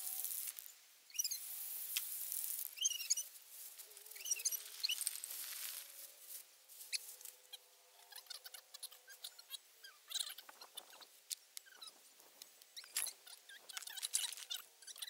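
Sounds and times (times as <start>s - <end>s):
spray paint can hissing: 0.0s - 5.9s
birds chirping: 2.8s - 5.2s, 6.8s - 15.0s
paper rustling: 3.6s - 7.4s.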